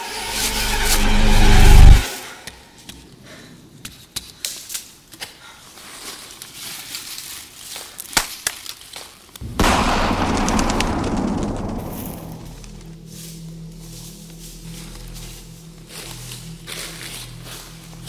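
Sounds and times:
loud low rumbling: 0.4s - 2.0s, 9.4s - 13.0s
sharp snaps and cracks: 3.9s - 5.4s, 6.4s - 12.9s.

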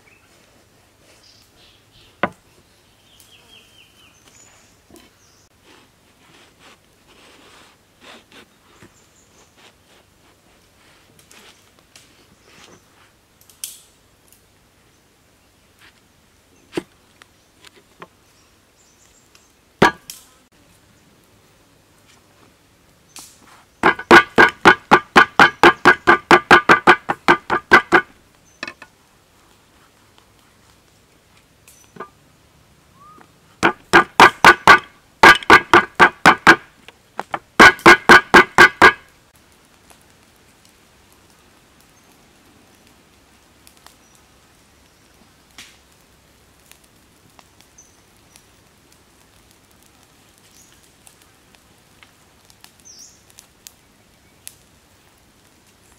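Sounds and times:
knife chopping on wooden block: 19.8s - 20.0s, 23.8s - 28.1s, 33.6s - 36.6s.

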